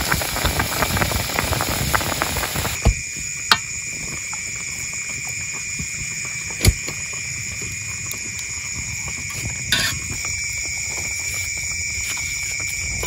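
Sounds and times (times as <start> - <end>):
night insects chorus: 0.0 - 13.0
wood fire crackling: 0.0 - 13.0.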